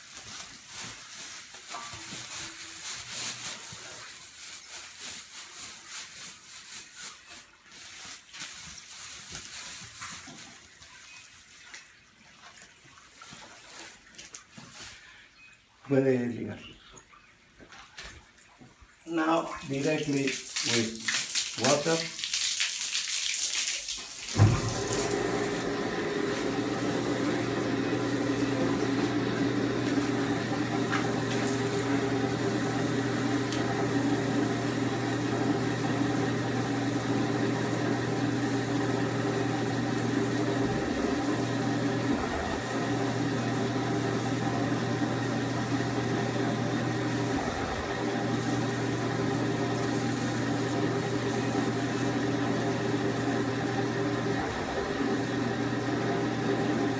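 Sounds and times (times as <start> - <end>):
water running from hose: 0.0 - 15.0, 19.1 - 56.9
motor knock: 24.4 - 25.1
motor humming: 24.4 - 56.9.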